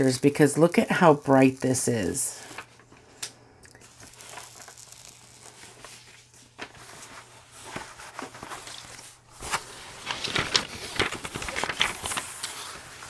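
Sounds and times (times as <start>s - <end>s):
canvas and plastic film rustling: 3.8s - 13.0s.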